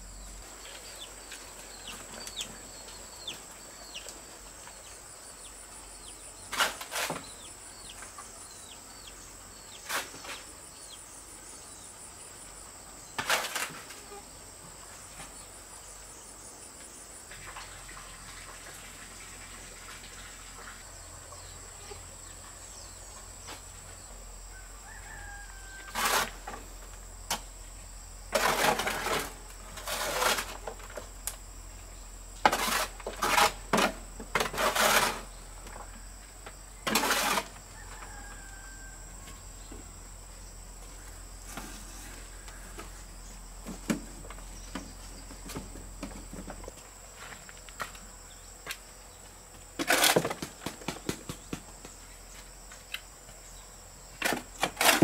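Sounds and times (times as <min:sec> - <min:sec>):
cricket chirping: 0:00.0 - 0:55.0
insects droning: 0:00.0 - 0:55.0
small birds chirping: 0:00.1 - 0:12.0.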